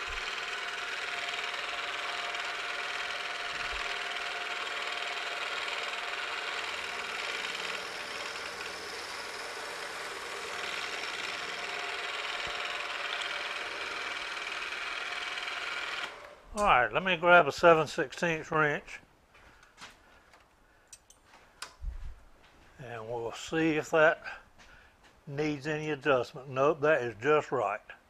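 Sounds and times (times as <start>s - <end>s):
milling machine hum and whine: 0.1s - 16.3s.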